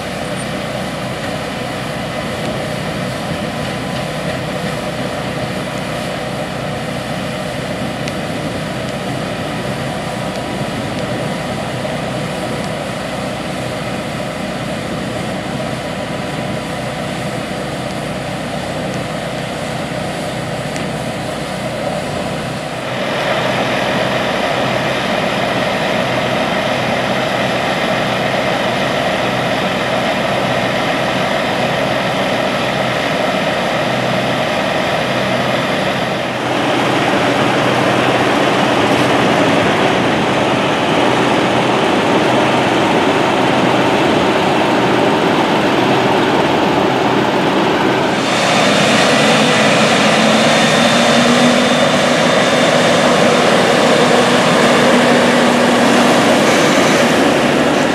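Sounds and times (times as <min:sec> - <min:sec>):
farm machinery engines running: 0:00.0 - 0:57.9
conveyor running: 0:21.5 - 0:57.9.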